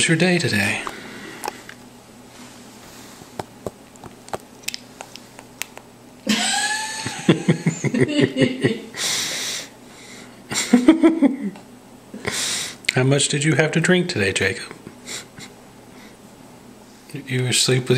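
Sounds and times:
baby sucking on pacifier: 0:03.1 - 0:05.9.

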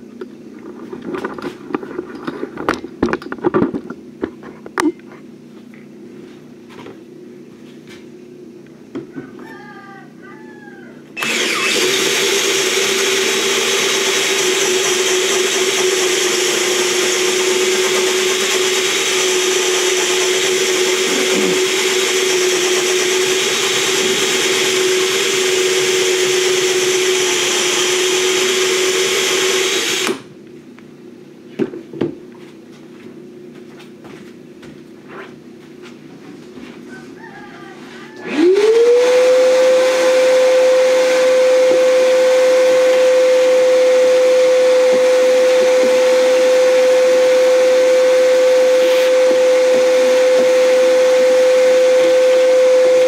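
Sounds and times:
drill whining through wood: 0:11.2 - 0:30.3, 0:38.2 - 0:53.0.

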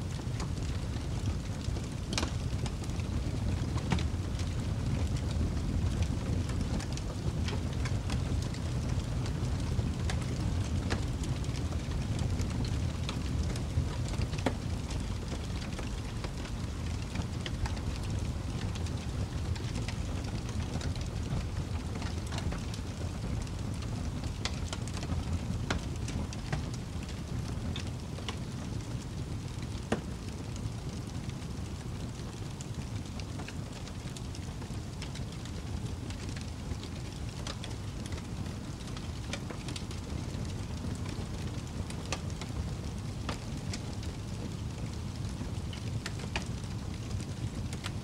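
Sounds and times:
steady rain hiss: 0:00.0 - 0:48.0
raindrops ticking: 0:00.4 - 0:48.0.

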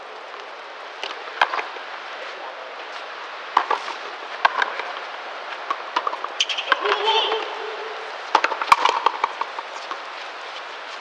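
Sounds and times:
rubber ball hitting rackets and wall: 0:03.5 - 0:03.8, 0:04.4 - 0:05.0, 0:05.6 - 0:07.6, 0:08.3 - 0:10.0.

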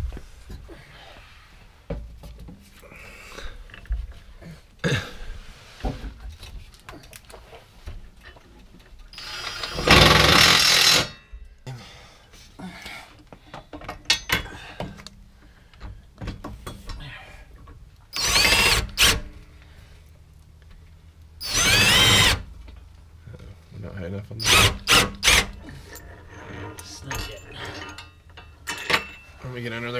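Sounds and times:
cordless impact tool driving bolts: 0:09.2 - 0:11.2, 0:18.1 - 0:19.3, 0:21.4 - 0:22.5, 0:24.4 - 0:25.6
tool handling clicks and knocks: 0:13.3 - 0:17.0, 0:25.3 - 0:29.4.

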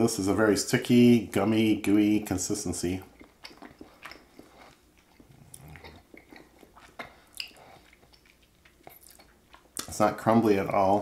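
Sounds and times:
chewing sticky candy: 0:01.8 - 0:10.4.

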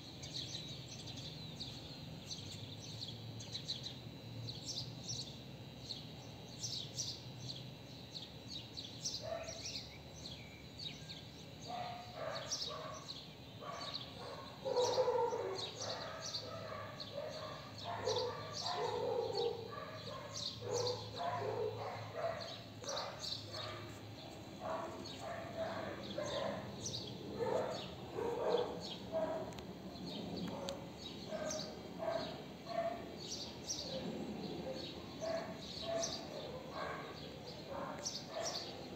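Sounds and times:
small birds chirping: 0:00.0 - 0:38.9
dog barking: 0:09.2 - 0:09.7, 0:11.7 - 0:24.0, 0:24.6 - 0:29.6, 0:30.5 - 0:33.1, 0:33.8 - 0:38.8.

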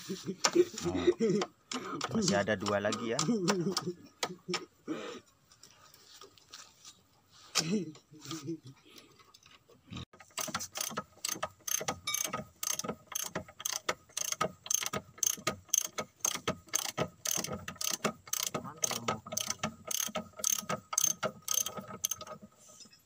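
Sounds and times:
ratchet wrench clicking: 0:10.2 - 0:22.4.

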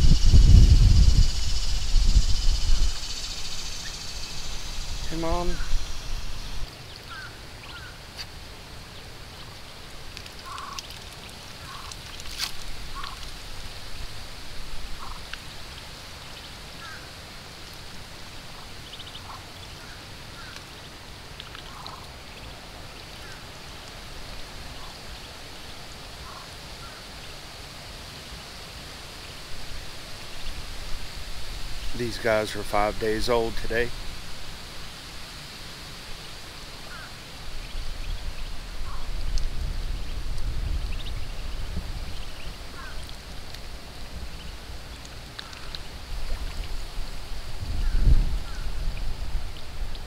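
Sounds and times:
low background noise: 0:00.0 - 0:50.0
duck and ducklings calling: 0:00.3 - 0:08.3, 0:10.1 - 0:12.3, 0:12.9 - 0:13.3, 0:15.0 - 0:17.1, 0:18.3 - 0:23.5, 0:26.2 - 0:27.0, 0:31.9 - 0:34.0, 0:36.8 - 0:46.7.

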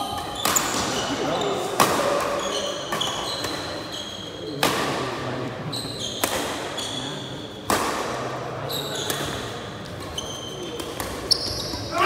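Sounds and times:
shoes squeaking on court floor: 0:00.1 - 0:04.7, 0:05.6 - 0:07.6, 0:08.6 - 0:12.0
badminton rackets hitting shuttlecock: 0:06.2 - 0:06.8, 0:10.7 - 0:11.3.

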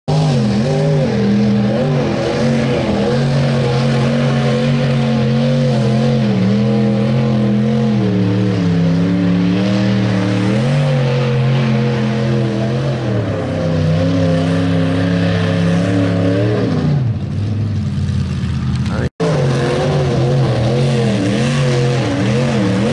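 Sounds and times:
truck engine revving: 0:00.0 - 0:22.9
tyres churning mud: 0:00.1 - 0:22.9.

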